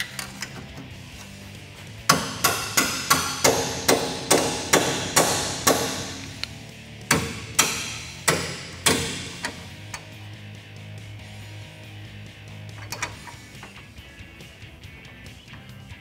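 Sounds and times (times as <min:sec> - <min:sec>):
hammer striking steel bolt: 0:02.1 - 0:10.1.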